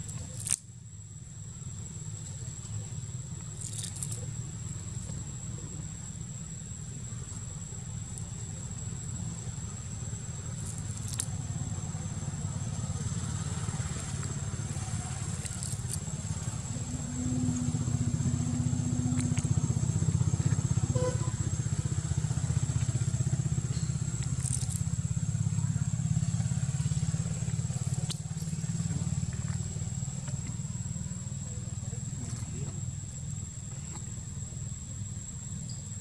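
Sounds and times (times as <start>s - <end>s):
low engine rumble: 0.0s - 36.0s
sugar cane being bitten and torn: 0.1s - 0.7s, 3.6s - 4.2s, 10.6s - 11.3s, 15.4s - 16.0s, 24.2s - 24.8s.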